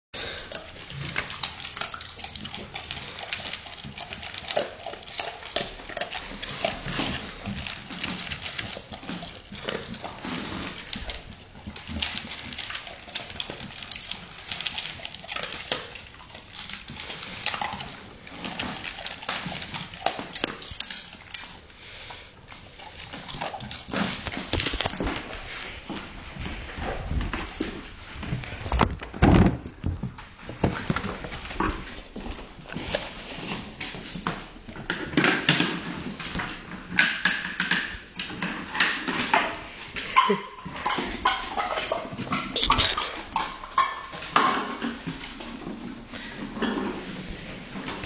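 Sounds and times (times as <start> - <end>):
dogs crunching dry kibble: 0.2 - 48.0.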